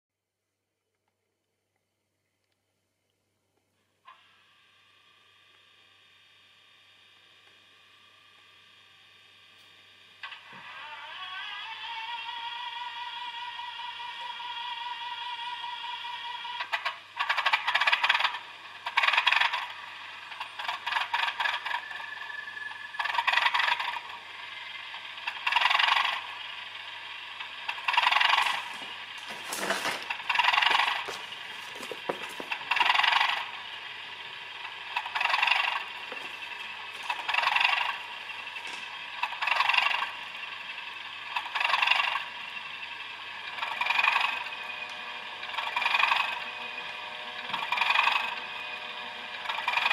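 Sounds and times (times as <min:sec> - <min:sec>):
diesel locomotive engine sounds: 0:03.4 - 0:49.9
clattering pulse: 0:27.6 - 0:33.6.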